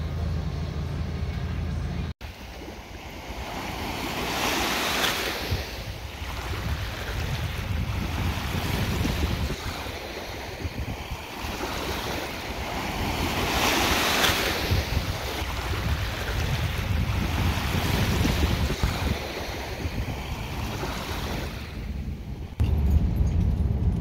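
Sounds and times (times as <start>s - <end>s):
lake waves washing on beach: 2.2s - 22.6s
wind rumbling on microphone: 2.6s - 24.0s.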